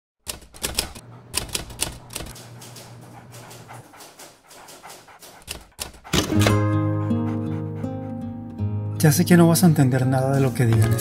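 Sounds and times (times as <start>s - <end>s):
typewriter keys clacking: 0.2s - 6.5s.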